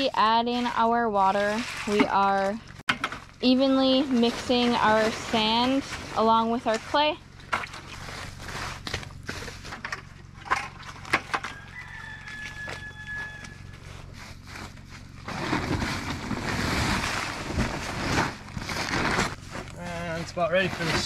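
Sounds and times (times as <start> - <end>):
plastic tarp rustling and scraping: 0.0 - 11.3, 13.7 - 21.0
bare feet squelching in wet mix: 5.0 - 9.7.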